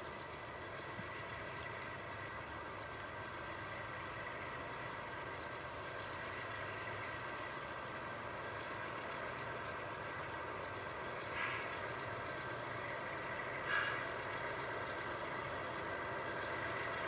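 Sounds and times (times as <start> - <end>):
model diesel locomotives running: 0.0 - 17.0.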